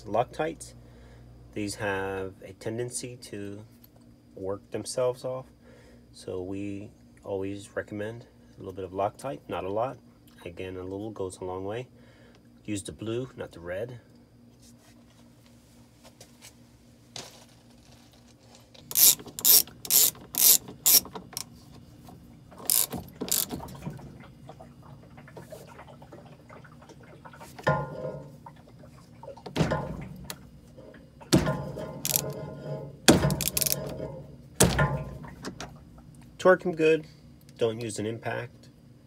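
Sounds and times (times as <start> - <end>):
socket ratchet clicking: 18.9 - 21.5, 22.7 - 23.6, 32.0 - 32.4, 33.3 - 33.8.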